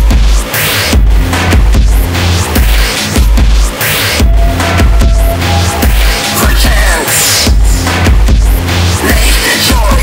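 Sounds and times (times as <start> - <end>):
pulsing bass synth: 1.0 - 9.2
held synth note: 4.2 - 7.8.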